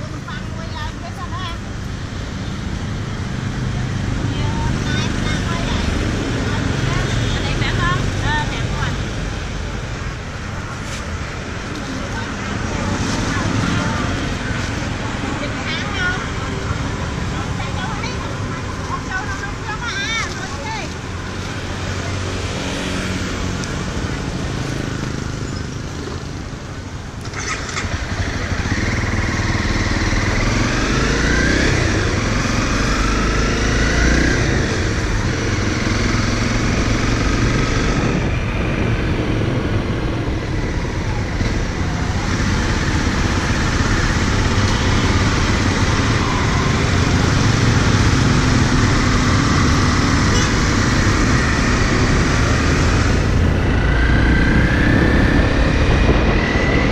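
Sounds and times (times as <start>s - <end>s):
motorcycle engine running: 27.2s - 56.9s.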